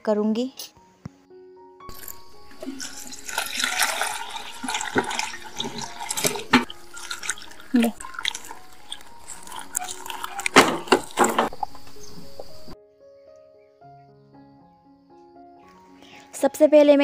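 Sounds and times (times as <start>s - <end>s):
hand swishing shrimp in water: 1.9s - 11.5s
water pouring into plastic bowl: 1.9s - 11.8s.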